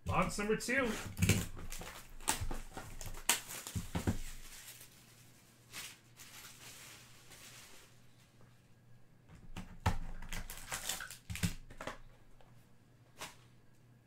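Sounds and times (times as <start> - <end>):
cardboard and plastic clicks: 11.2 - 12.1.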